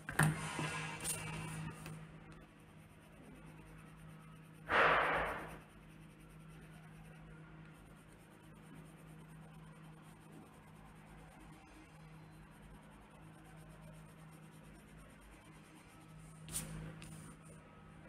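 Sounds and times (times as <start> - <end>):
pencil scratching on paper: 0.3 - 17.5
card swishing on table: 4.7 - 5.5, 16.5 - 17.2.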